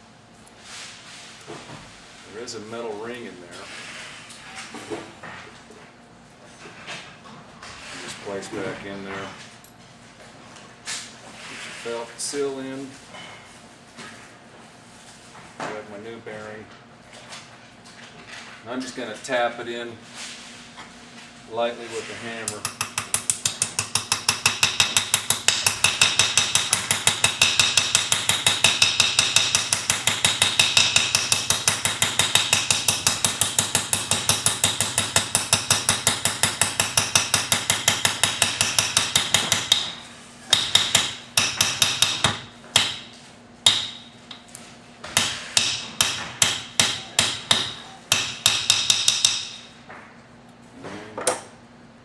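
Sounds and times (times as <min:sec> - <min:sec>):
small hammer tapping metal: 0:22.5 - 0:39.9, 0:40.5 - 0:44.4, 0:45.2 - 0:49.7.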